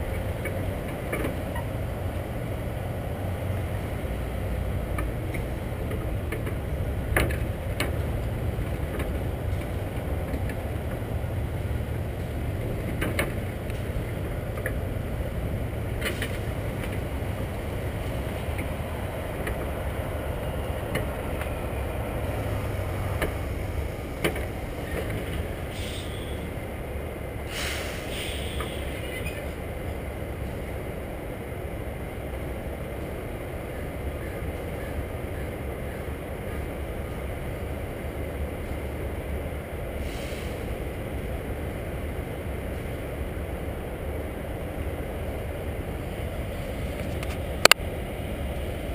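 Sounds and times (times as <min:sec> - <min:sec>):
truck diesel engine rumbling: 0:00.0 - 0:48.9
short hisses: 0:25.7 - 0:26.4, 0:27.5 - 0:28.9, 0:40.0 - 0:40.7.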